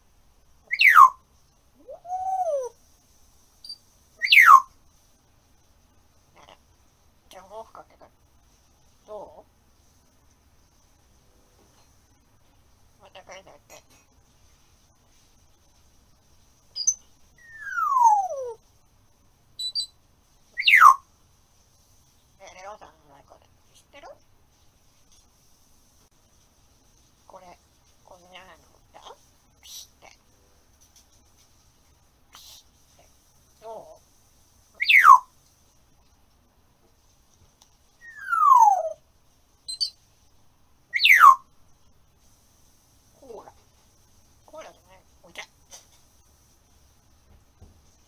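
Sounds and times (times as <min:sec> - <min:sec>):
parrot hoot: 0:00.7 - 0:01.1, 0:01.8 - 0:02.8, 0:04.2 - 0:04.6, 0:16.8 - 0:18.6, 0:20.6 - 0:21.0, 0:34.8 - 0:35.2, 0:38.0 - 0:39.0, 0:40.9 - 0:41.4
parrot whistling downward: 0:16.8 - 0:18.6, 0:34.8 - 0:35.2, 0:38.0 - 0:39.0, 0:41.0 - 0:41.4.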